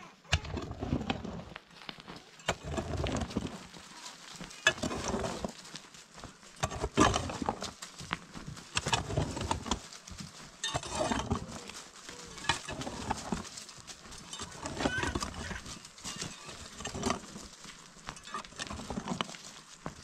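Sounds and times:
soil and pebbles scattering: 0:00.0 - 0:20.0
digging tool striking stony earth: 0:00.3 - 0:01.6, 0:02.2 - 0:03.8, 0:04.5 - 0:05.6, 0:06.5 - 0:07.8, 0:08.4 - 0:09.9, 0:10.6 - 0:11.8, 0:12.4 - 0:13.5, 0:14.3 - 0:17.4.

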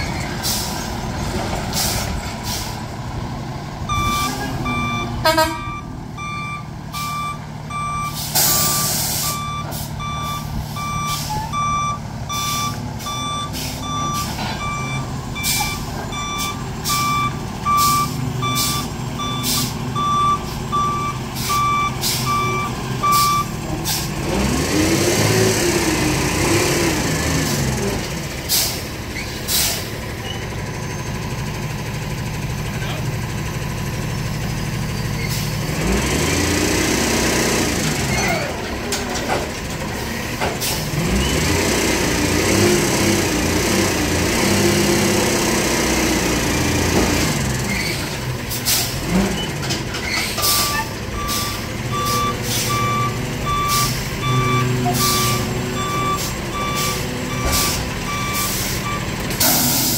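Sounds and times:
diesel truck engine: 0:00.0 - 0:59.9
reverse alarm beeping: 0:03.9 - 0:23.6, 0:50.4 - 0:59.1.

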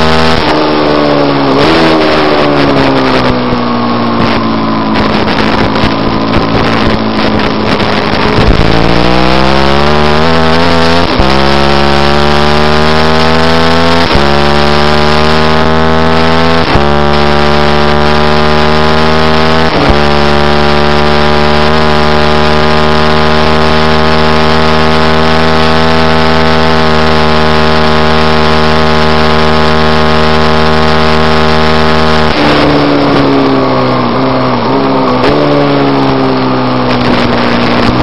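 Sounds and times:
motorcycle engine at full throttle: 0:00.0 - 0:38.0
wind rush: 0:01.3 - 0:11.3.

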